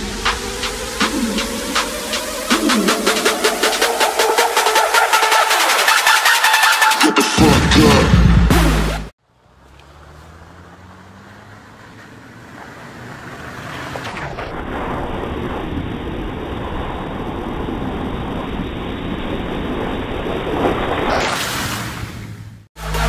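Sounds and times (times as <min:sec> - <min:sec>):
vehicle engine running: 0:08.1 - 0:14.1, 0:22.5 - 0:23.0
tyres splashing through puddles: 0:09.2 - 0:15.8, 0:19.6 - 0:22.6.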